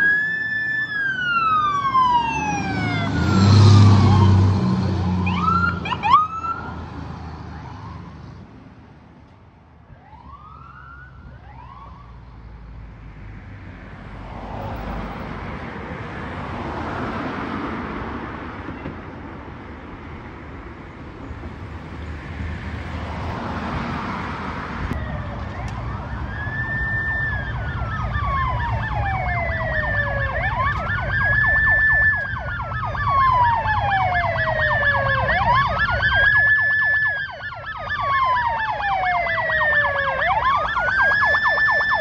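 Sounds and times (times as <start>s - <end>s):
fire engine siren whoops: 0.0s - 8.4s, 9.9s - 12.2s, 24.9s - 42.0s
vehicle engine and road noise: 0.0s - 42.0s.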